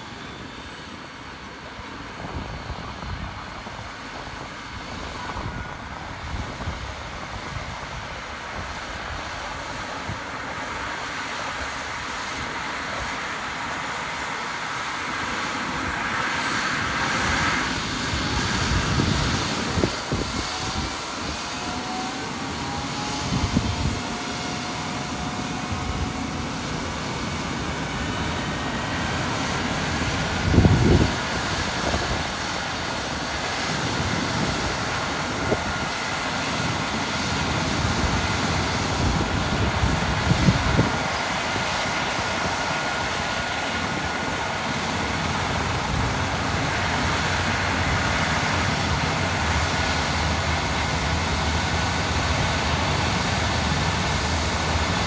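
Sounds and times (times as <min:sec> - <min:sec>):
helicopter turbines and rotor: 0:00.0 - 0:55.0.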